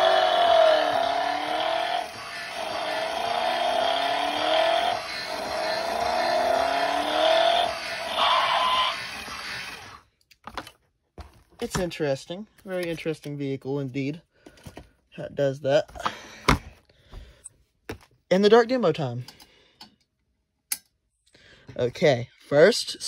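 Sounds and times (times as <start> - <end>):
toy electronic engine revving: 0.0 - 10.0.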